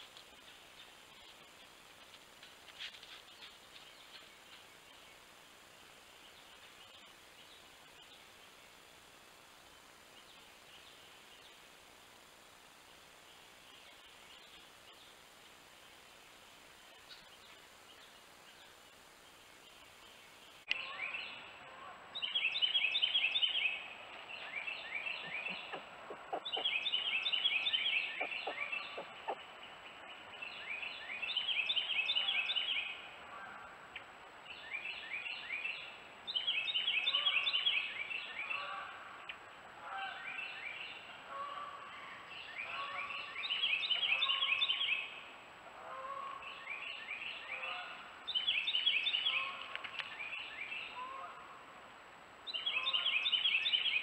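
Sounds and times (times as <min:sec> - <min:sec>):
soft bird calls: 0:22.2 - 0:33.0.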